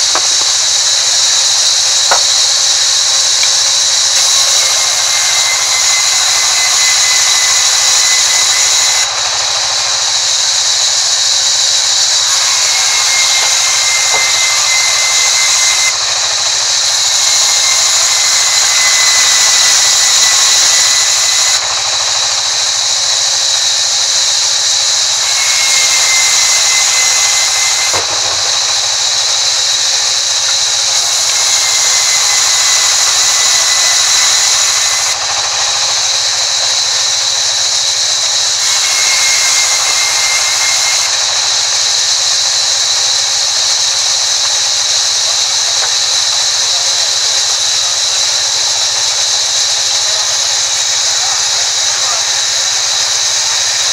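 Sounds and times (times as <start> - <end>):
band saw ripping wood: 0.0 - 10.2, 12.0 - 22.5, 25.1 - 36.8
faint whistle: 4.1 - 10.3, 11.4 - 21.8, 25.0 - 28.1, 37.8 - 41.5.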